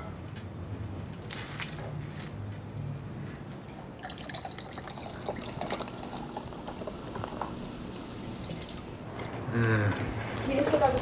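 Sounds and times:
beer pouring into glass: 0:04.0 - 0:08.9.

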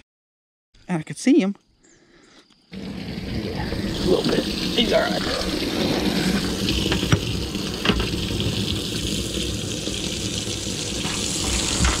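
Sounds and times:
water spraying into tank: 0:02.7 - 0:12.0.

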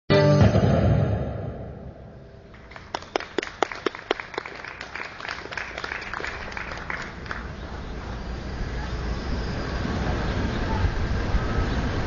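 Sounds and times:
audience applause: 0:02.5 - 0:07.6.

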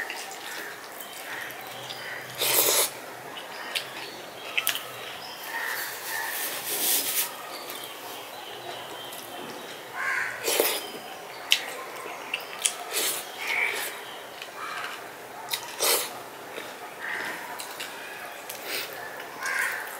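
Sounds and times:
chewing: 0:00.0 - 0:06.2, 0:11.5 - 0:19.9.

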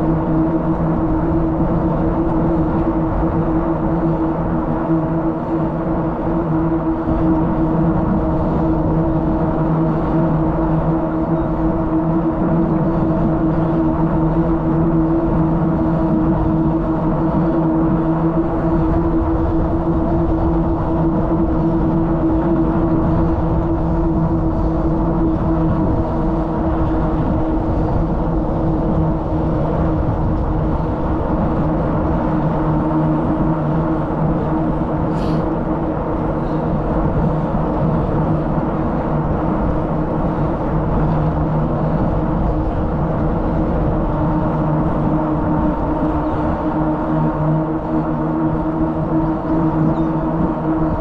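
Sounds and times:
bicycle tyre hum on pavement: 0:00.0 - 0:51.0
wind rush: 0:00.0 - 0:51.0.

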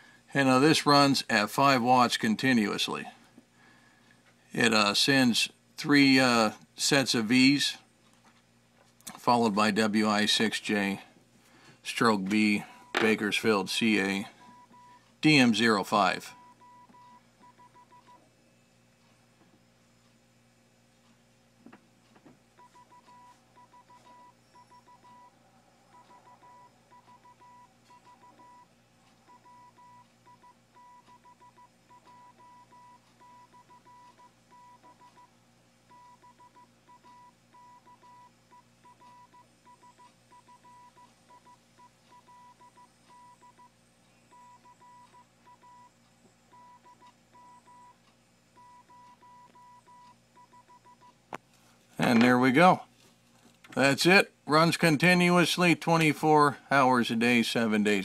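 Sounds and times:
faint morse code tone: 0:29.3 - 0:35.3, 0:35.9 - 0:43.7, 0:44.3 - 0:48.0, 0:48.6 - 0:51.2.

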